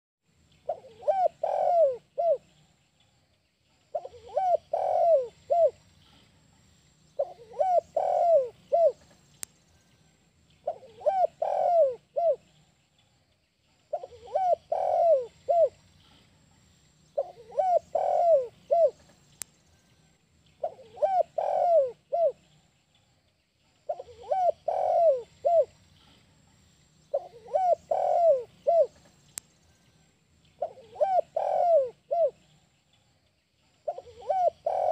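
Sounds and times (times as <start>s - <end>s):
dove cooing: 0.6s - 2.5s, 3.9s - 5.8s, 7.2s - 9.1s, 10.6s - 12.5s, 13.9s - 15.8s, 17.2s - 19.1s, 20.6s - 22.4s, 23.9s - 25.8s, 27.1s - 29.1s, 30.6s - 32.4s, 33.8s - 34.9s.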